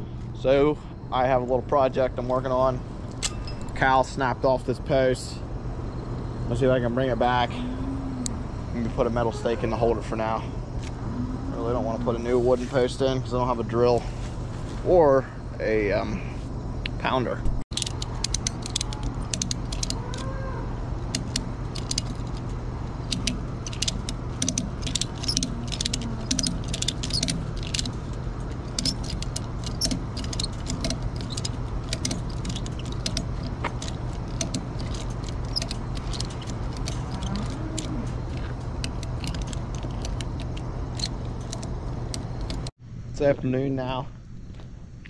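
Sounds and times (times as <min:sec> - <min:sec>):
steady low hum: 0:00.0 - 0:45.0
metal hardware rattling: 0:17.7 - 0:20.3, 0:21.0 - 0:42.7
ratchet strap clicking: 0:17.7 - 0:20.3, 0:21.0 - 0:42.7.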